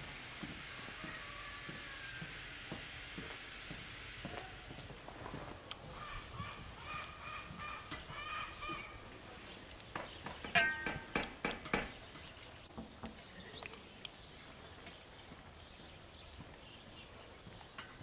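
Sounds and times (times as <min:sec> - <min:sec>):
birds chirping: 0:00.6 - 0:18.0
fingers squishing butter in bowl: 0:05.6 - 0:16.1.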